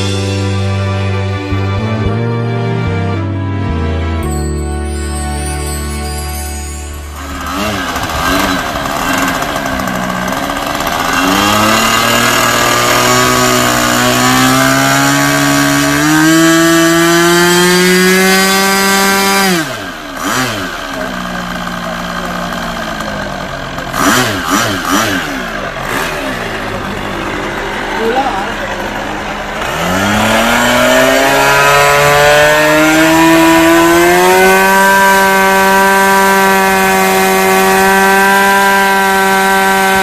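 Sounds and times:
small model airplane engine revving: 0:07.1 - 0:40.0.

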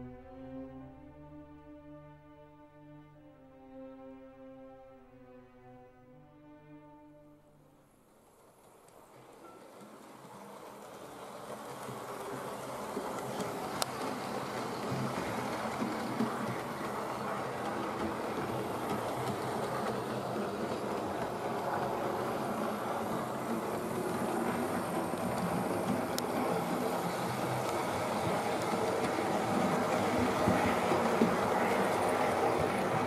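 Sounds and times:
model train running on track: 0:07.7 - 0:33.0.

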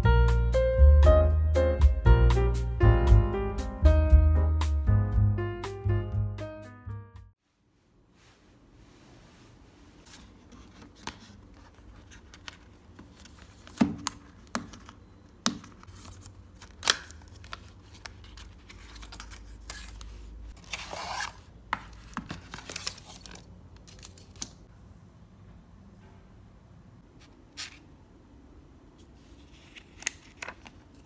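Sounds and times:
cardboard rustling scrapes: 0:20.5 - 0:23.2.

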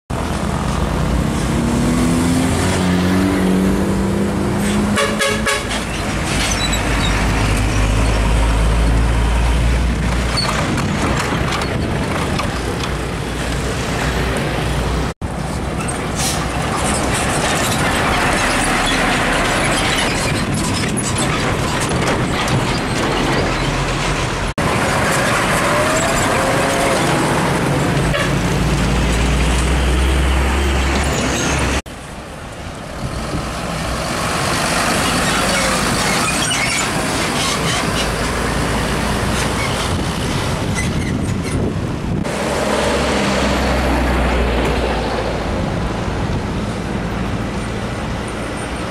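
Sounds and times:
diesel trucks driving past: 0:00.1 - 0:48.9
tyre and road noise: 0:00.1 - 0:48.9
truck horn or air brake: 0:04.6 - 0:05.9, 0:16.1 - 0:16.6, 0:28.1 - 0:28.4.

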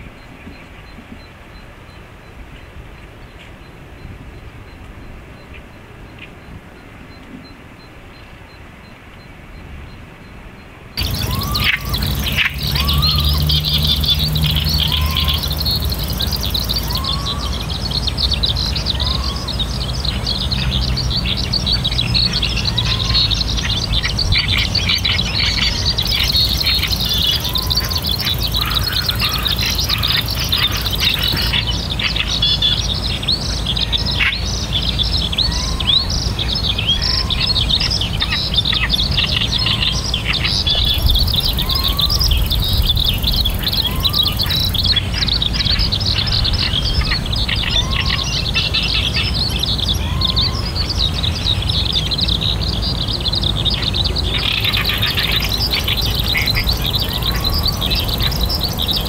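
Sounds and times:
steady low rumble: 0:11.0 - 0:39.6
birds and insects chirping: 0:11.0 - 0:59.0.

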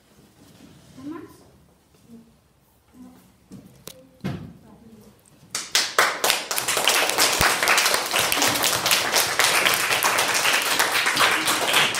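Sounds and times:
children applauding: 0:05.6 - 0:11.9.

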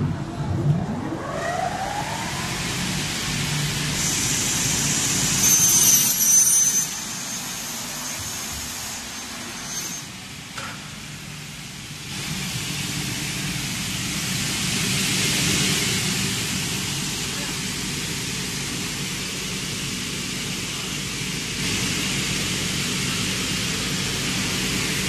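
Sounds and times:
rushing noise: 0:00.0 - 0:10.5
saw motor high whine: 0:00.7 - 0:10.1
saw blade screeching through metal: 0:05.1 - 0:10.1.

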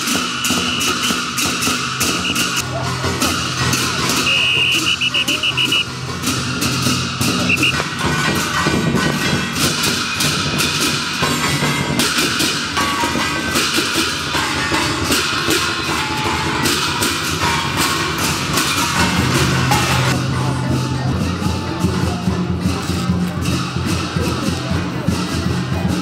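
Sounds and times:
fast busy drums and cymbals: 0:00.0 - 0:26.0.

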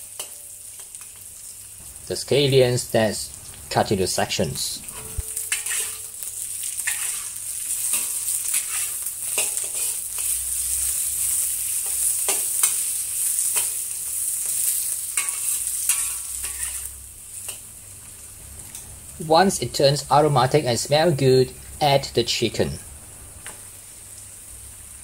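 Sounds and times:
aromatics sizzling in oil: 0:00.0 - 0:25.0
metal spatula scraping wok: 0:03.3 - 0:13.8, 0:14.7 - 0:17.6.

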